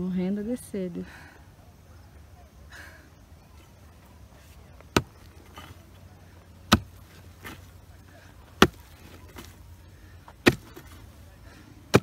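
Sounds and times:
hoe chopping into earth: 0:04.9 - 0:05.8, 0:06.6 - 0:07.7, 0:08.5 - 0:09.6, 0:10.3 - 0:11.1.

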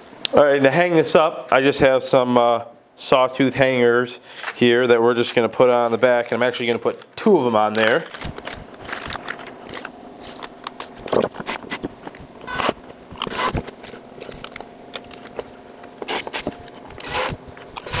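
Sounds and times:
faint steady hum: 0:00.0 - 0:18.0
cordless impact driver: 0:12.4 - 0:13.6, 0:16.1 - 0:18.0.

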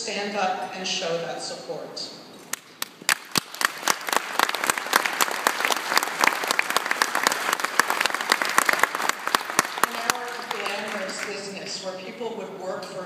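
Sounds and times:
audience applauding: 0:02.5 - 0:11.4
loud claps near microphone: 0:02.5 - 0:11.4.

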